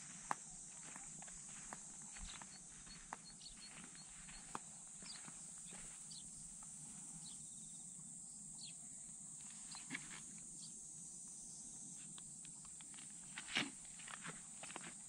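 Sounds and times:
footsteps on asphalt: 0.0 - 6.2
bird chirps: 2.2 - 6.4.

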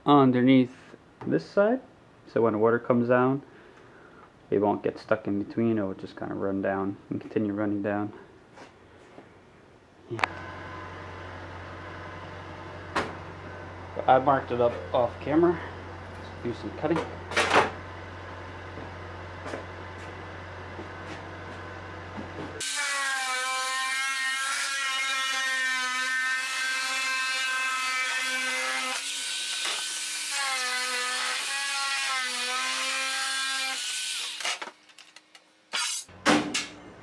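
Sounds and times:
electric metal shear whining: 22.6 - 36.1.

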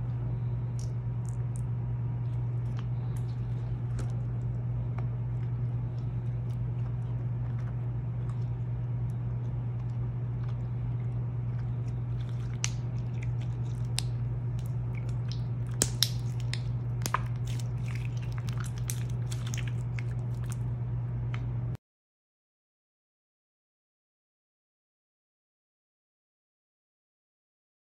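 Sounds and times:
steady low hum: 0.0 - 21.8
slime squelching clicks and pops: 15.3 - 17.3.

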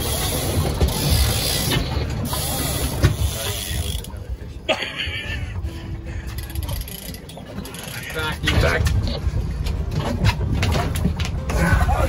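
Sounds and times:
fishing reel ratcheting: 0.0 - 4.2, 6.3 - 8.5.

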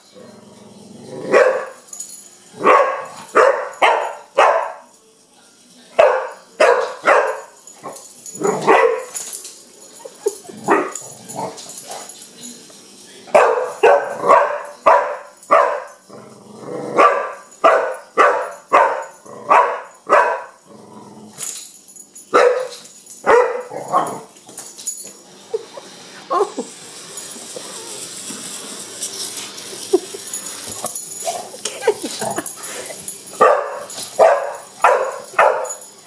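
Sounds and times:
dog barking: 1.3 - 1.7, 2.6 - 4.9, 6.0 - 7.5, 8.4 - 9.1, 13.4 - 15.9, 17.0 - 20.5, 22.4 - 22.7, 23.3 - 24.2, 33.4 - 35.8.

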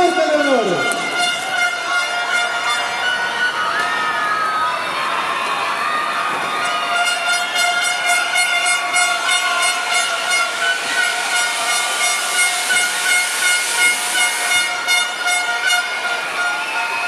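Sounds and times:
steady horn-like tone: 0.0 - 3.6, 6.8 - 16.6
spark fountains hissing: 9.6 - 15.1.

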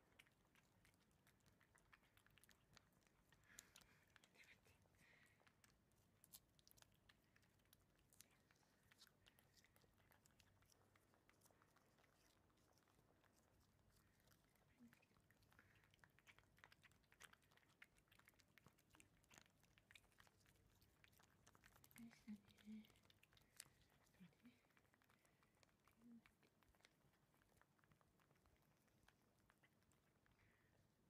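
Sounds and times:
cats licking wet clicking: 0.0 - 31.0.

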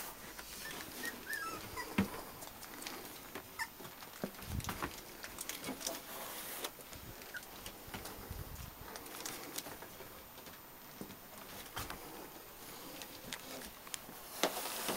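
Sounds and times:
rustling: 0.0 - 14.9
puppies whimpering and squeaking: 0.5 - 2.3, 3.5 - 3.9, 7.2 - 7.6.

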